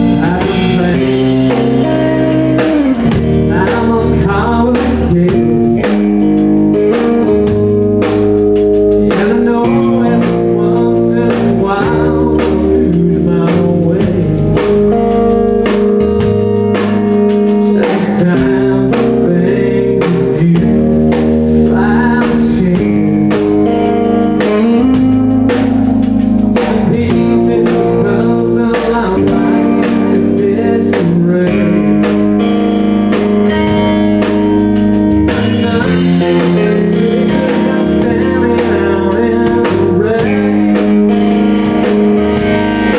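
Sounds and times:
man singing: 0:00.0 - 0:07.5, 0:09.0 - 0:23.7, 0:26.5 - 0:33.6, 0:35.2 - 0:42.5
electric guitar: 0:00.0 - 0:42.9
steady drum beat: 0:00.0 - 0:42.9.

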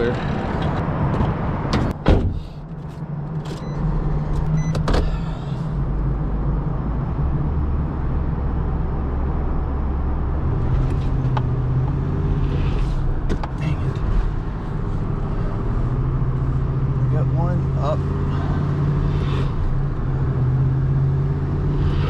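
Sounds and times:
truck engine rumbling: 0:00.0 - 0:22.0.

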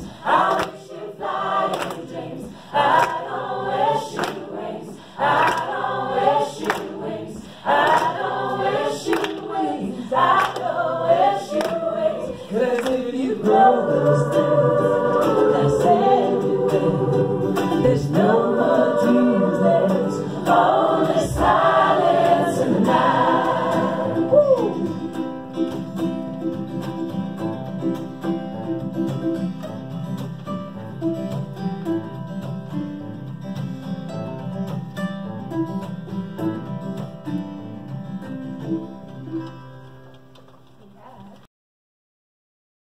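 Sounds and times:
choir singing: 0:00.0 - 0:26.0
acoustic guitar: 0:00.0 - 0:41.5.

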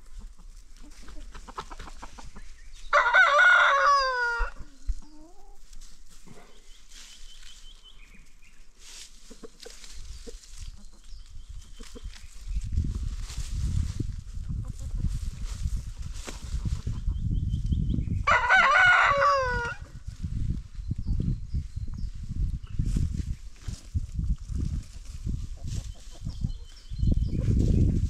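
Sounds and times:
hens clucking softly: 0:00.0 - 0:02.6, 0:09.2 - 0:12.2
rooster crowing: 0:02.9 - 0:04.6, 0:18.2 - 0:19.8.

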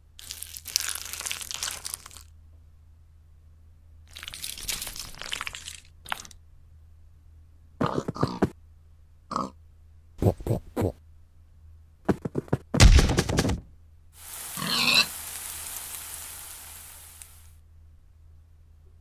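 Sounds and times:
pig grunting and oinking: 0:07.8 - 0:08.6, 0:09.3 - 0:09.6, 0:10.2 - 0:11.0, 0:14.6 - 0:15.1.

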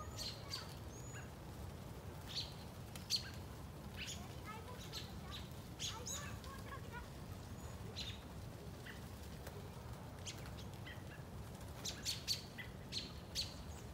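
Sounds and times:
robins chirping: 0:00.0 - 0:01.4, 0:02.2 - 0:09.2, 0:10.2 - 0:13.9.

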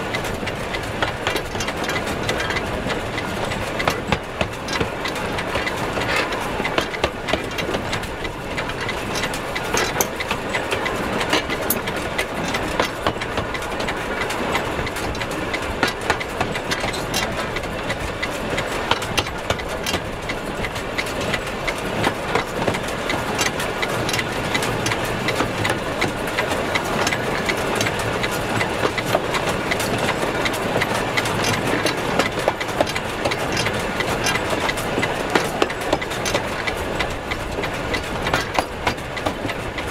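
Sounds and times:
clicks and clanks from rails: 0:00.0 - 0:39.9
steam locomotive running gear rattle: 0:00.0 - 0:39.9.

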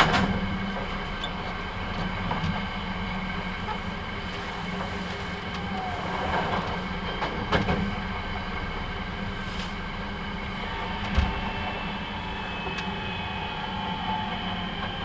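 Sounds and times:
train wheels rumbling on rail: 0:00.0 - 0:15.0
faint steady whine: 0:08.3 - 0:15.0.

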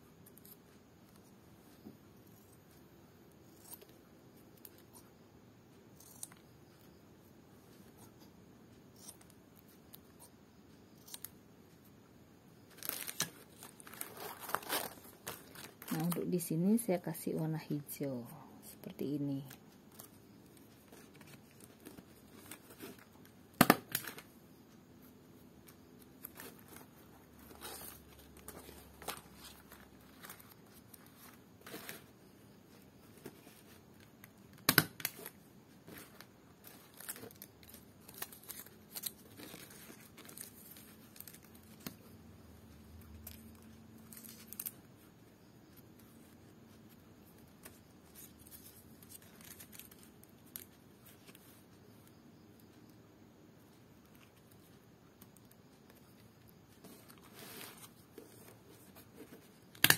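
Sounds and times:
leaf strips rustling: 0:12.7 - 0:16.9, 0:35.0 - 0:42.0.

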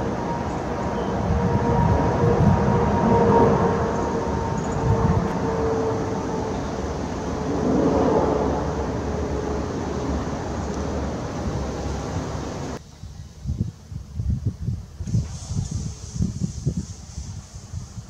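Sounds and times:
jet airliner passing overhead: 0:00.0 - 0:13.2.

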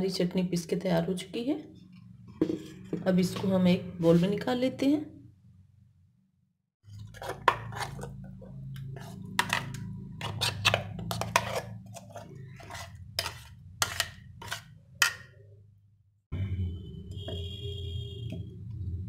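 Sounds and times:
spoon scraping steel jar: 0:06.9 - 0:15.3.

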